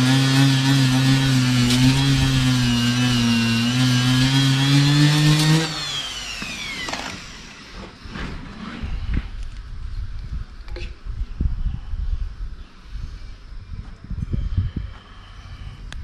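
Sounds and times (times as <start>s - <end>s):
die grinder whining on rubber: 0.0s - 9.1s.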